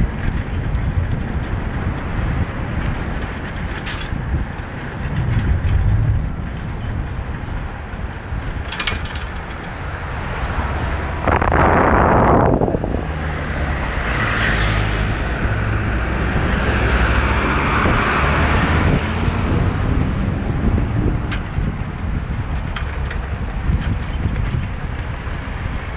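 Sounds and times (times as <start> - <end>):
wind rushing over microphone: 0.0 - 25.9.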